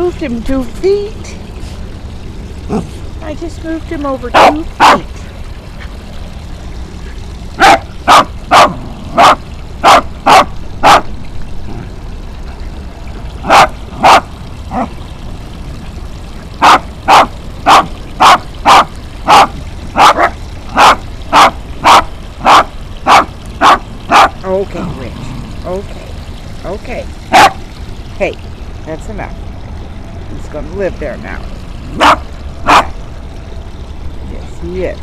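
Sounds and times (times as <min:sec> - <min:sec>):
dog barking: 0:04.4 - 0:05.0, 0:07.6 - 0:11.0, 0:13.5 - 0:14.2, 0:16.6 - 0:24.3, 0:27.3 - 0:27.6, 0:32.0 - 0:32.9.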